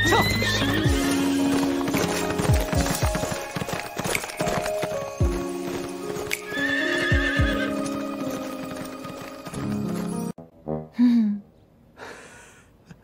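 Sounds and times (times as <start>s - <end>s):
horse whinnying: 0.0s - 1.7s, 6.3s - 8.5s
orchestral music with drums: 0.0s - 10.3s
horse hooves galloping: 0.0s - 10.4s.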